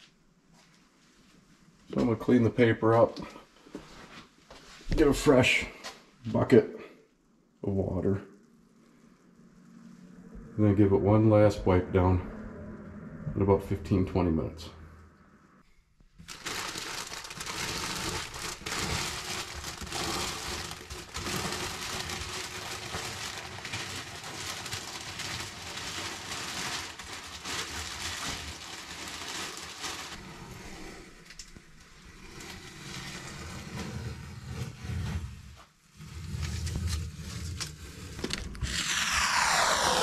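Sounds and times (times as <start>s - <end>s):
paper crinkling and rustling: 16.2s - 30.3s.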